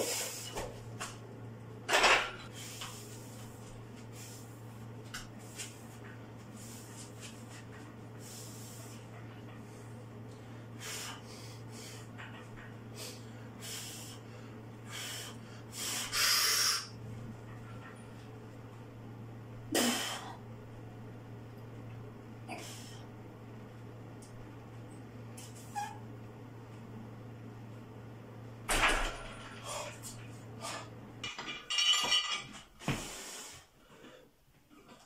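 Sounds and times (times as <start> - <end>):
man breathing strained: 12.9 - 17.0, 19.7 - 20.4, 22.5 - 23.1.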